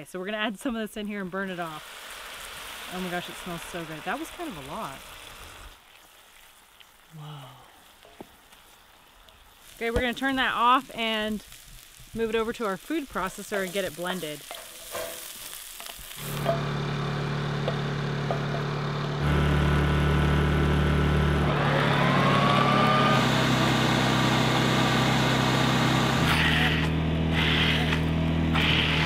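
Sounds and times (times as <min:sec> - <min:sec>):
blender motor bursts: 0:16.1 - 0:29.0
generator engine hum: 0:16.2 - 0:29.0.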